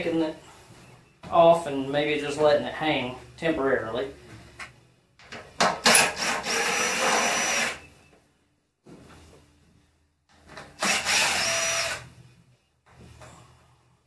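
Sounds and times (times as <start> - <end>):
cordless drill motor whine: 6.4 - 7.8, 10.8 - 12.0.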